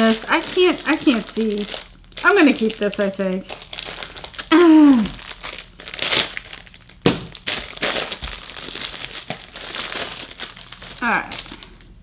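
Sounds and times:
packaging crinkling and tearing: 0:00.0 - 0:12.0
person saying oh: 0:04.4 - 0:05.2.

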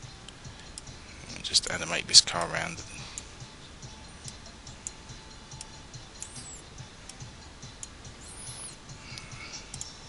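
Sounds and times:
brief high squeaks: 0:08.2 - 0:08.8.

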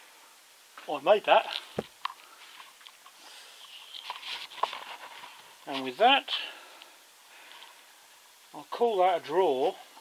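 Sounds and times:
faint clicks and rustles: 0:00.7 - 0:06.1, 0:06.7 - 0:08.2.

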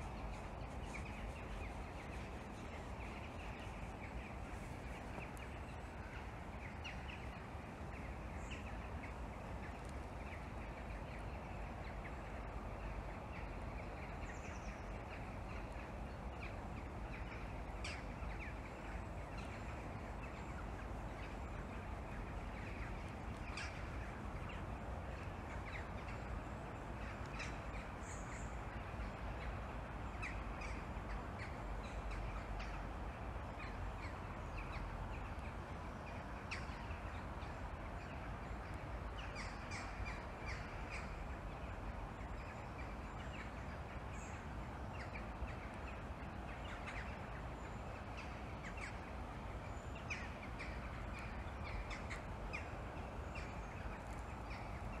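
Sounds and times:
distant birdsong: 0:00.0 - 0:55.0
low outdoor rumble: 0:00.0 - 0:55.0.

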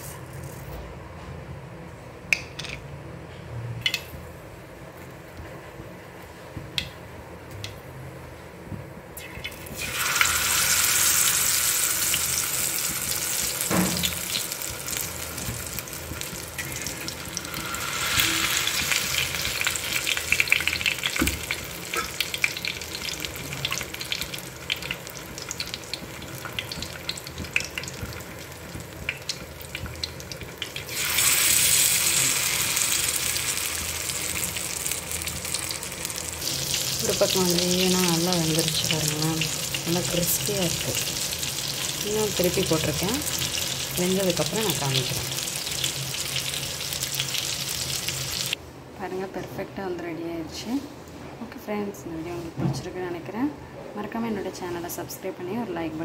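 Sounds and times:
fish sizzling in hot oil: 0:09.2 - 0:48.6.

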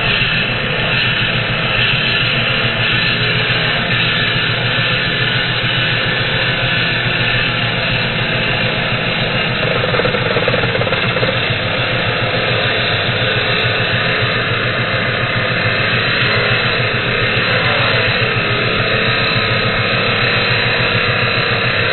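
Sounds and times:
angle grinder cutting steel: 0:02.2 - 0:12.8.

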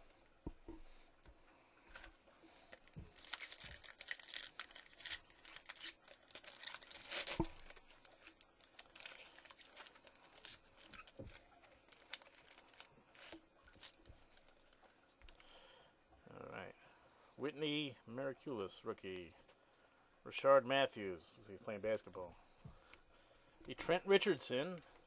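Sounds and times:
foil wrapper tearing and crinkling: 0:02.0 - 0:14.7.

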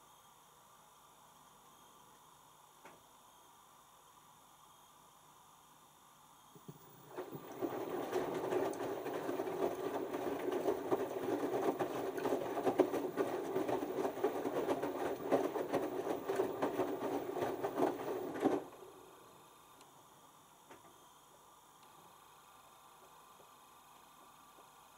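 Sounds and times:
washing machine motor hum: 0:06.6 - 0:24.9
wet laundry tumbling and splashing: 0:07.0 - 0:18.8.

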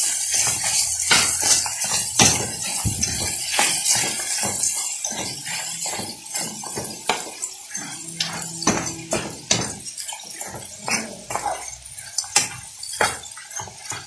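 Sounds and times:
metal spoon scraping metal pan: 0:03.6 - 0:14.0.

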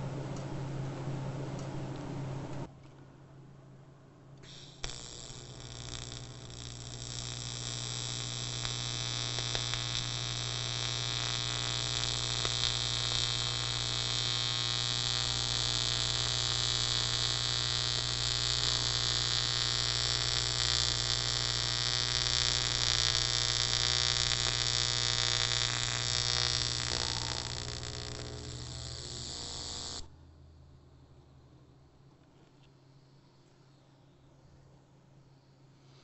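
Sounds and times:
welding arc buzzing and hissing: 0:04.4 - 0:30.1.

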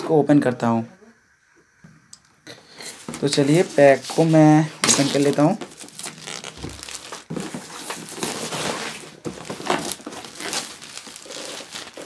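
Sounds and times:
plastic shrink-wrap crinkling: 0:03.0 - 0:12.0.

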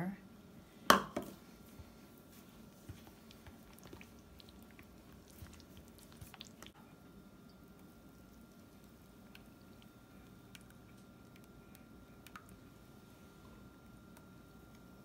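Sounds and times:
spatula stirring thick filling: 0:01.6 - 0:06.8.

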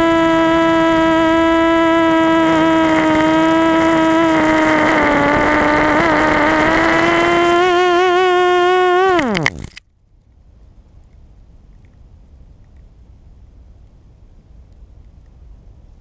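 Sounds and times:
drone motors and propellers whining: 0:00.0 - 0:09.8.

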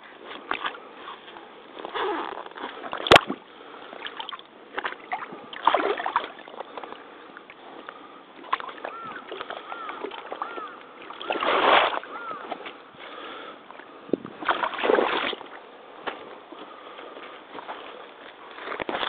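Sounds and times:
wading through muddy water: 0:00.0 - 0:19.0
splashing sloshing steps: 0:04.0 - 0:07.0, 0:07.9 - 0:13.2, 0:14.4 - 0:16.2.

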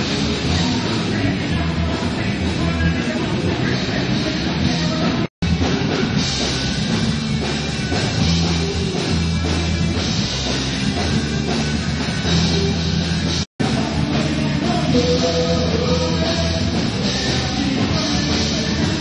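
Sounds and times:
drum kit: 0:00.0 - 0:19.0
guitar: 0:00.0 - 0:19.0.

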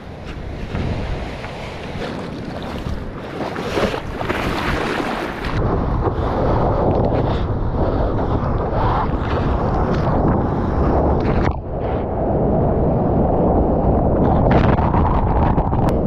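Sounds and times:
ocean surf splashing: 0:00.0 - 0:09.6
wind buffeting microphone: 0:00.0 - 0:16.0.

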